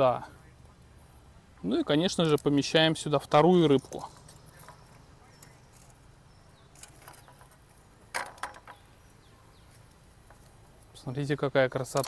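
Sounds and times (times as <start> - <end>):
wire grill basket clinking: 2.0 - 9.0.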